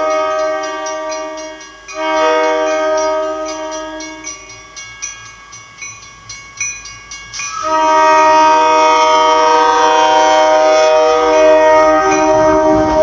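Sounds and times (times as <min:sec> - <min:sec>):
train air horn chord: 0:00.0 - 0:04.5, 0:07.5 - 0:13.0
warning bell ringing: 0:00.0 - 0:13.0.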